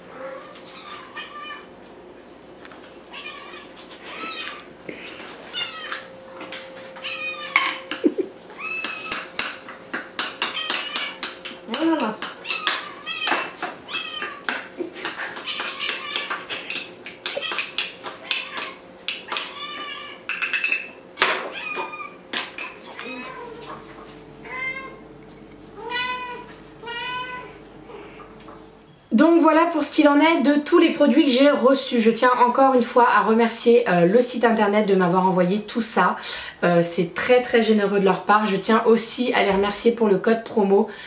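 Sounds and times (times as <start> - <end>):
cats meowing: 0.1 - 1.7, 3.1 - 4.7, 5.5 - 6.1, 6.9 - 9.3, 10.4 - 11.2, 12.4 - 14.6, 15.4 - 16.5, 17.3 - 20.3, 21.4 - 22.2, 22.9 - 23.8, 24.4 - 25.1, 25.7 - 28.1.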